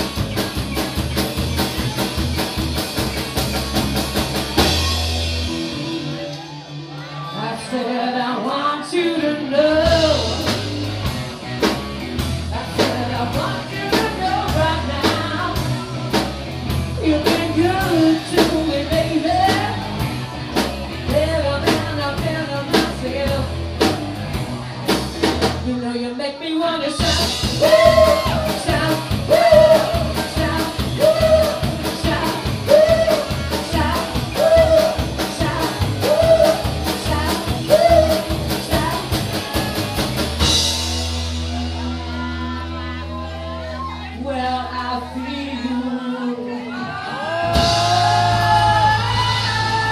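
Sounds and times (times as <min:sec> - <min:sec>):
drum kit beat: 0:00.0 - 0:07.0, 0:09.8 - 0:25.7, 0:27.0 - 0:43.0, 0:47.4 - 0:49.9
electric guitar: 0:00.0 - 0:49.9
person singing: 0:07.1 - 0:11.3, 0:12.4 - 0:20.1, 0:25.6 - 0:40.1, 0:41.4 - 0:49.9.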